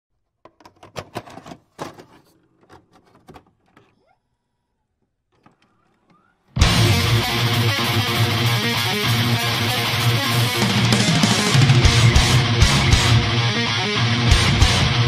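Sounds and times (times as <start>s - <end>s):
tape mechanism clicking and clunking: 0.4s - 4.1s, 5.3s - 6.6s
loud guitar music: 6.6s - 15.0s.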